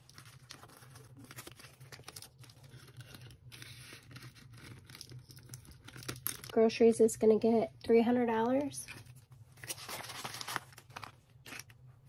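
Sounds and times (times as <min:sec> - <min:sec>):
paper banknotes rustling: 0:00.0 - 0:06.4, 0:09.6 - 0:11.7.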